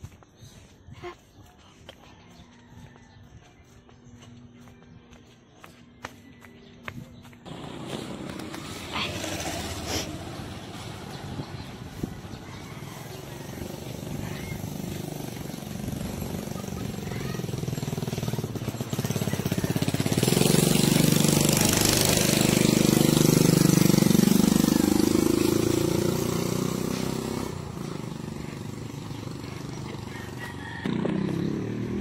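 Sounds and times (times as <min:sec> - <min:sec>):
small motorcycle engine passing: 0:07.5 - 0:32.0.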